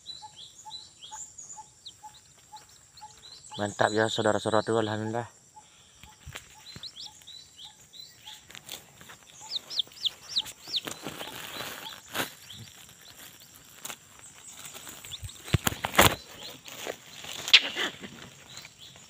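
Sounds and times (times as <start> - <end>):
footsteps in undergrowth: 2.0 - 3.7, 6.0 - 19.0.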